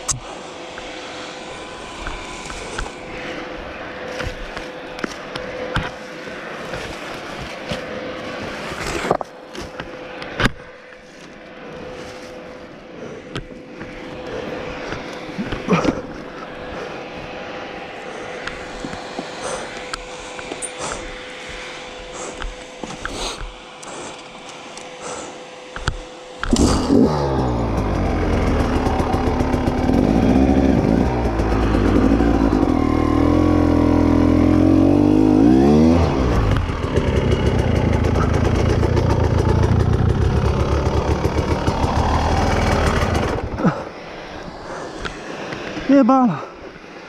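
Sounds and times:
motorcycle engine revving: 26.4 - 43.8.

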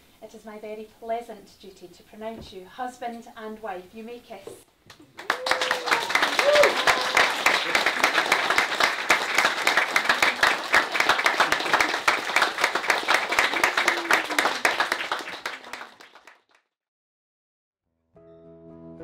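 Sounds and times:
guests applauding: 4.9 - 16.6.

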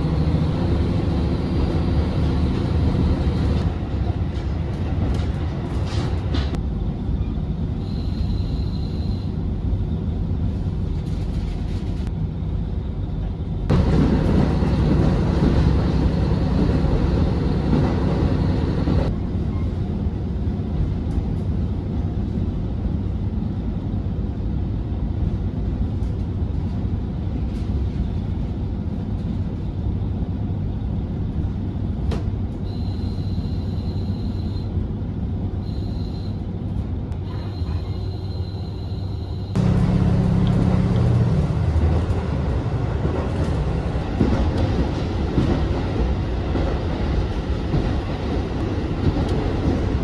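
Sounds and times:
train rumble inside passenger car: 0.0 - 50.0.

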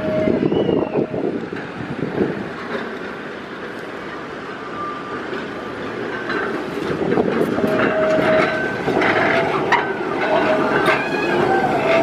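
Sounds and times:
high wheel squeals: 0.0 - 1.4, 4.1 - 12.0
tram wheels rumbling on rails: 0.0 - 12.0.

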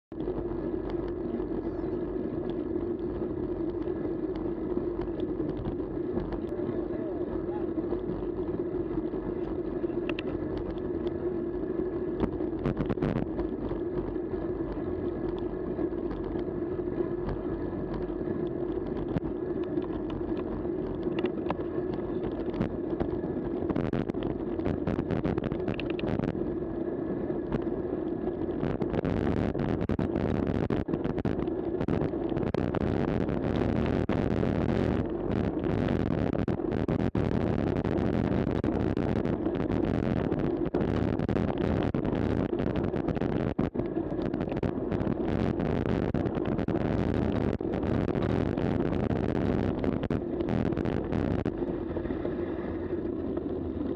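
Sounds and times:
bike tyre noise on tarmac: 0.1 - 53.9
small clicks and rattles: 2.4 - 6.6, 8.0 - 11.2, 12.2 - 26.3.

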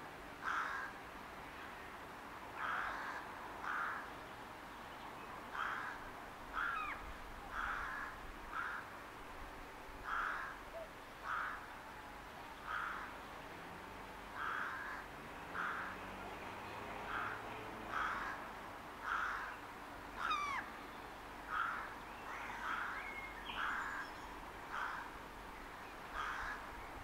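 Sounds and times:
rook cawing: 0.4 - 1.0, 2.6 - 4.1, 5.5 - 9.0, 10.0 - 11.8, 12.6 - 13.1, 14.4 - 16.0, 17.1 - 19.6, 20.2 - 20.7, 21.5 - 25.2, 26.1 - 26.7.

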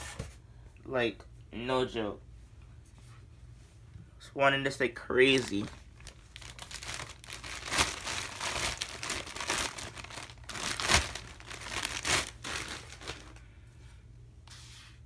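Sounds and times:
plastic packaging crinkling: 5.2 - 13.4.

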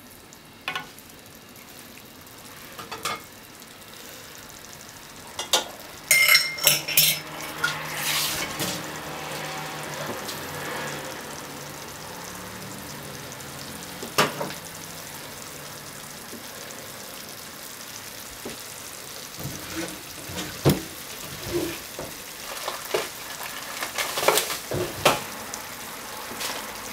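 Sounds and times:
food sizzling in a frying pan: 0.0 - 26.9
kitchenware clinking: 2.8 - 3.3, 5.4 - 8.8.

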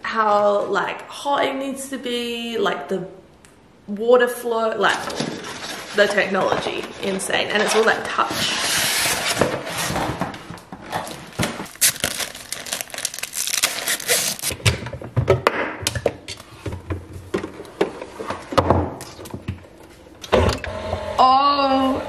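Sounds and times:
plastic packaging crinkling: 11.0 - 14.6.

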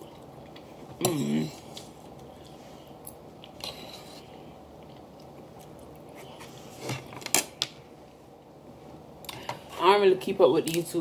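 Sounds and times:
quiet chewing: 1.6 - 6.4.

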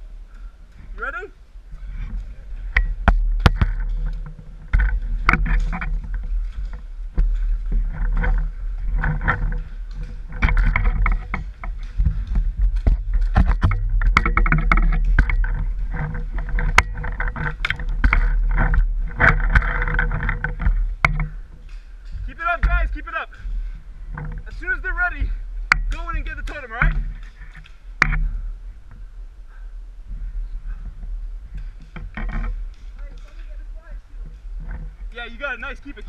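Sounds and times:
rustling on pine needles: 0.0 - 36.0
camera handling rumble: 1.9 - 24.6
sharp clicks and knocks: 2.1 - 29.0, 30.7 - 36.0.

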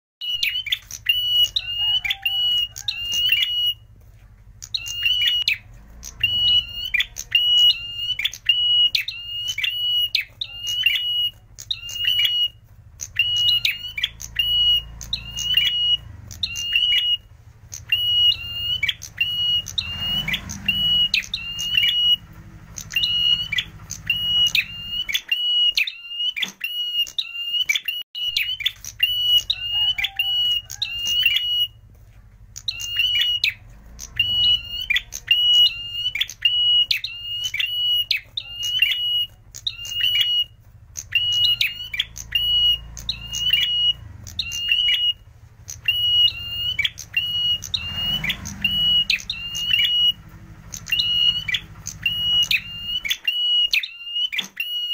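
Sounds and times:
tailorbird singing sharp notes: 32.5 - 54.9.

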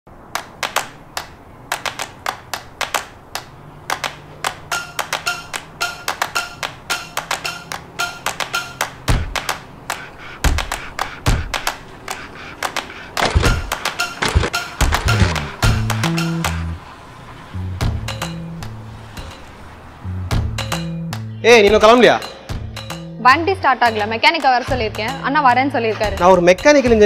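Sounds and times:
deep thuds: 10.4 - 11.7, 13.2 - 16.7.

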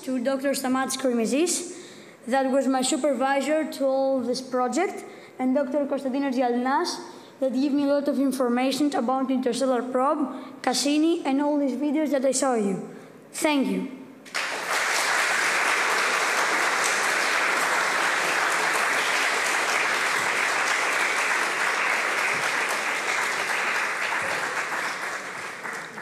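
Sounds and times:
audience applauding: 14.3 - 26.0.

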